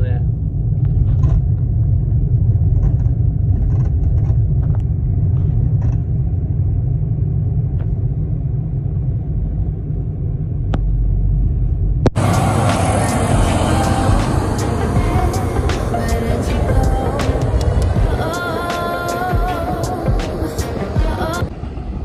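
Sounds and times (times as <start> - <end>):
car road and engine rumble: 0.0 - 22.0
hissing rush: 12.1 - 22.0.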